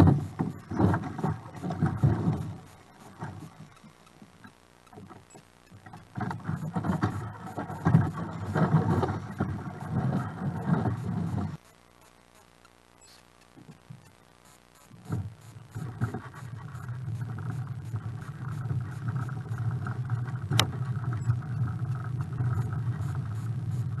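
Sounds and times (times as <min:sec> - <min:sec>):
trolley wheels rolling on concrete: 0:00.0 - 0:03.9, 0:05.8 - 0:11.6.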